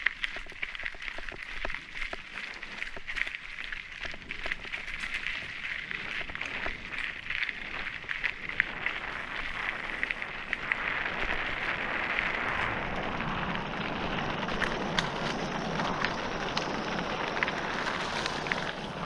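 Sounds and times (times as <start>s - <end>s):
bike tyres crunching on gravel: 0.0s - 19.0s
sharp ticks of stones: 0.0s - 19.0s.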